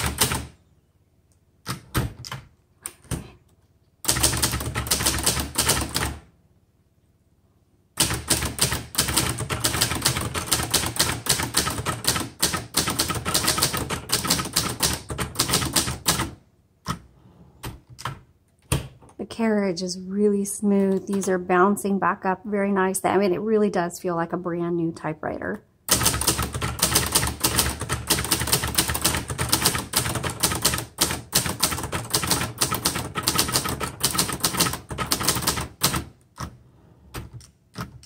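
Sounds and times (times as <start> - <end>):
manual typewriter typing: 0.0 - 0.6, 4.0 - 6.2, 8.0 - 17.0, 25.9 - 38.0.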